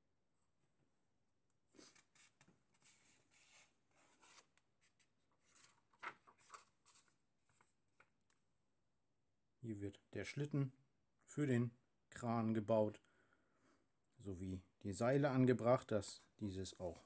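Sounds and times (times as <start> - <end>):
paper rustling: 1.8 - 8.1.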